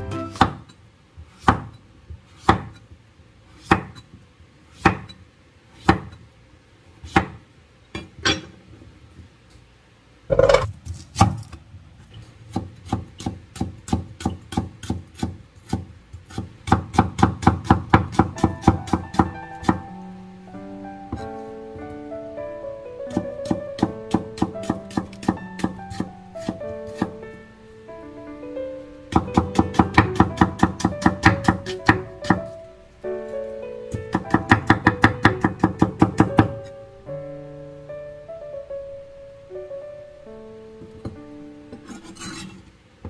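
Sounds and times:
loud knock: 0:10.3 - 0:10.7
cleaver chopping on wooden board: 0:29.1 - 0:32.4.

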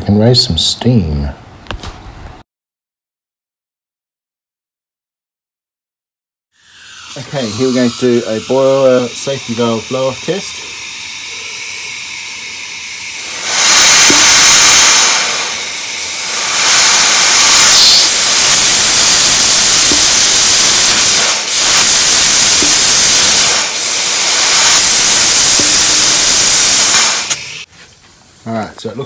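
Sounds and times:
safety valve hissing air: 0:06.6 - 0:27.7.

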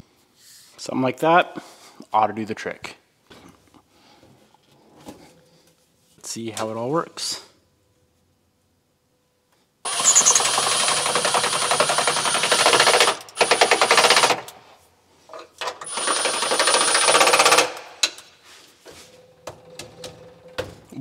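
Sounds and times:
impact driver rattling: 0:09.9 - 0:14.6, 0:15.6 - 0:18.2.

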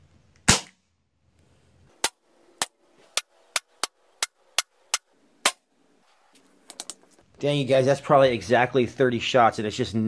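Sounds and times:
air rifle shots: 0:00.4 - 0:00.9.

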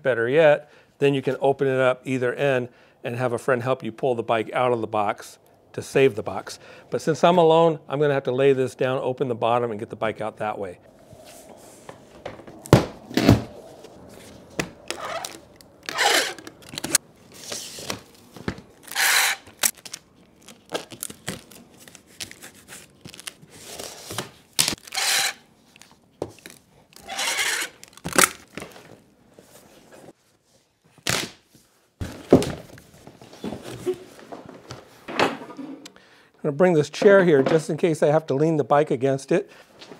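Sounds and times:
cardboard ripping and scraping: 0:12.5 - 0:25.4, 0:26.4 - 0:28.9.

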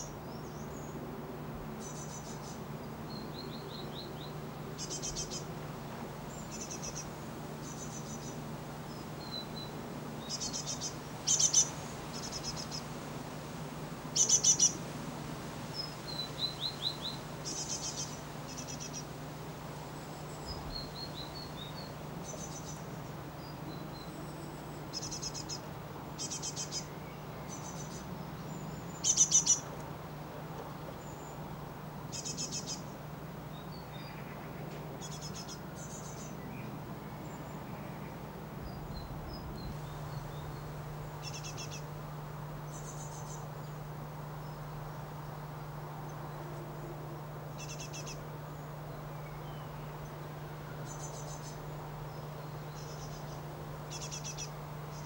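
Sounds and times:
steady low hum: 0:00.0 - 0:55.0
birds chirping: 0:06.3 - 0:12.9, 0:32.1 - 0:46.6.

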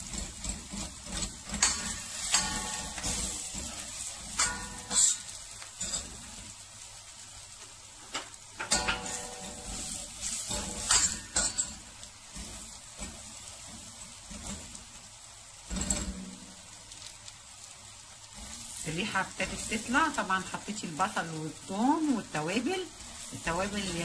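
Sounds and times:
onions sizzling in butter: 0:00.0 - 0:24.0
pot ringing: 0:01.6 - 0:03.2, 0:04.4 - 0:05.3, 0:08.6 - 0:09.8.

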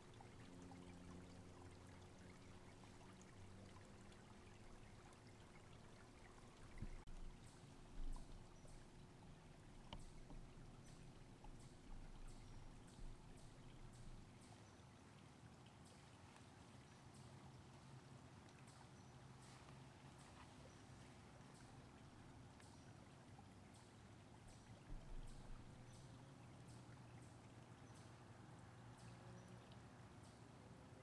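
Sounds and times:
light high ticks: 0:00.0 - 0:28.3, 0:28.9 - 0:31.0
creek running water: 0:00.0 - 0:31.0
soft low thumps: 0:06.7 - 0:08.8, 0:24.9 - 0:25.8.

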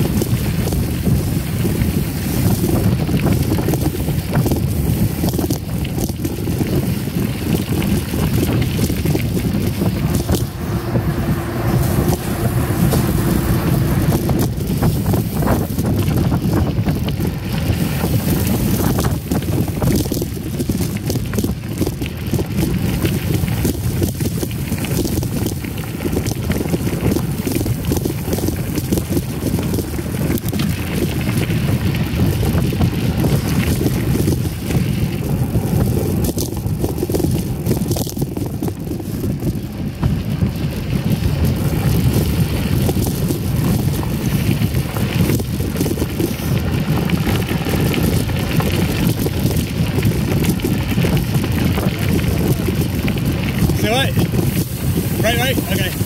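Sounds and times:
bike tyres rumbling on gravel: 0:00.0 - 0:56.0
wind buffeting microphone: 0:00.0 - 0:56.0
bike knocks and rattles: 0:02.4 - 0:11.6.

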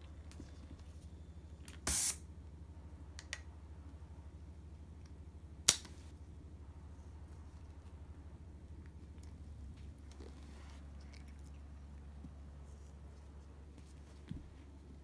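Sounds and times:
low steady hum: 0:00.0 - 0:15.0
rustling scrape: 0:09.8 - 0:11.6.

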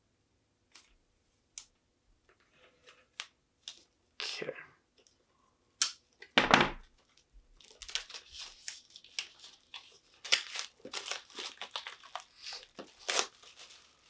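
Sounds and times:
plastic wrap crinkling: 0:07.0 - 0:14.0.

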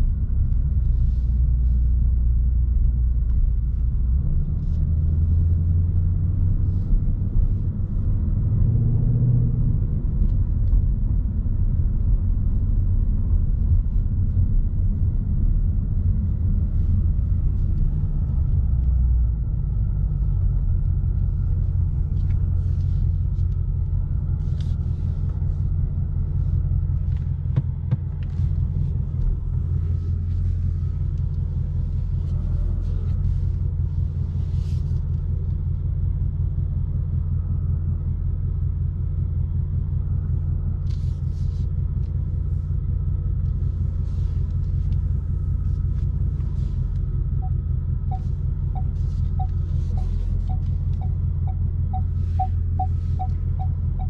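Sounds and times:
car engine rumbling: 0:00.0 - 0:54.0
short electronic beeps: 0:47.4 - 0:54.0.

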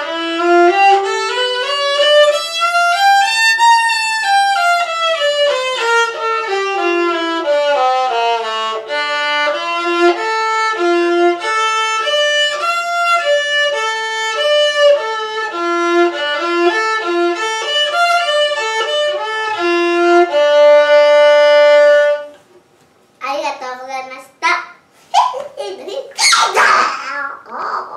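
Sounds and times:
violin playing scales: 0:00.0 - 0:22.4.

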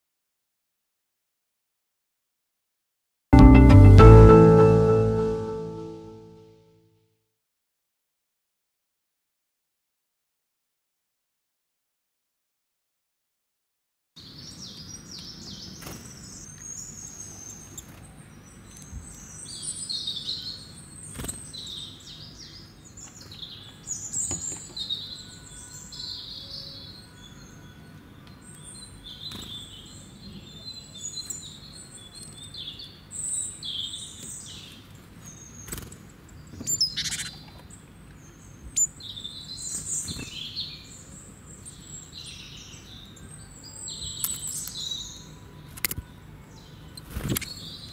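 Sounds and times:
small birds chirping: 0:14.2 - 0:47.9.

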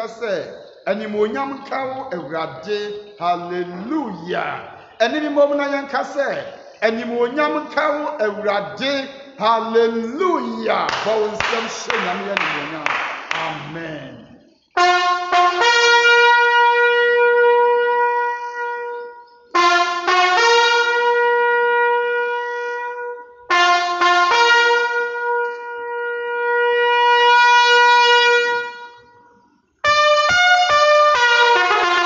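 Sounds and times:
horn blowing long calls: 0:14.8 - 0:32.0.

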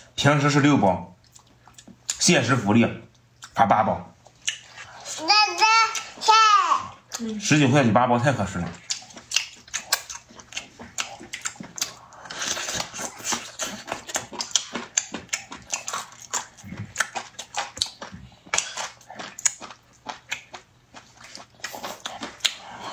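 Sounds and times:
people chewing and sucking: 0:01.2 - 0:02.2, 0:04.2 - 0:05.2, 0:08.6 - 0:22.9.

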